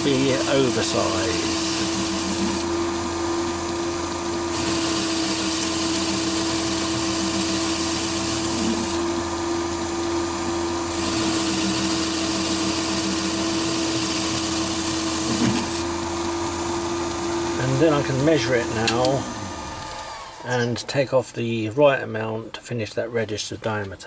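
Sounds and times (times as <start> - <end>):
metal lathe humming and whining: 0.0 - 21.0.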